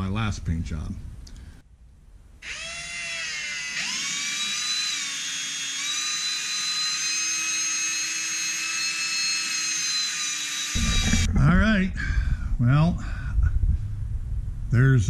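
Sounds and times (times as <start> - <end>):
electric drill motor whine: 2.4 - 11.3.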